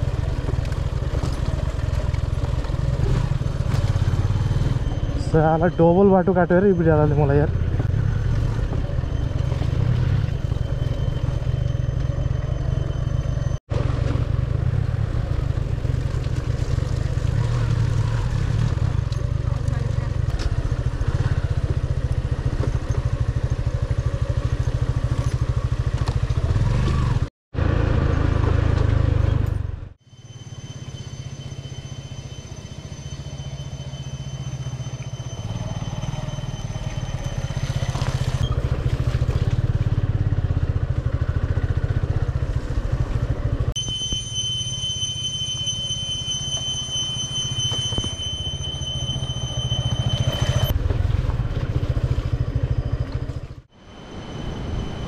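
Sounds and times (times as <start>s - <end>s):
motorcycle engine running: 0.0s - 12.9s, 13.7s - 44.5s
steady high-pitched tone: 3.5s - 13.6s, 30.0s - 38.6s, 43.8s - 50.8s, 52.4s - 55.0s.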